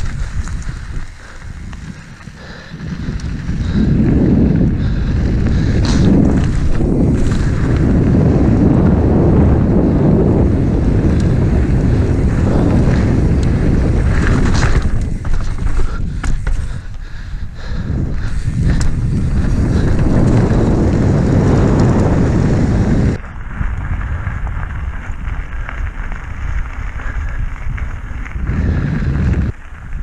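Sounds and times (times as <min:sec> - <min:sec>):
tyre rumble on asphalt: 0:00.0 - 0:30.0
wind buffeting microphone: 0:00.0 - 0:30.0
rattling knocks of bike: 0:04.8 - 0:07.8, 0:13.6 - 0:17.1.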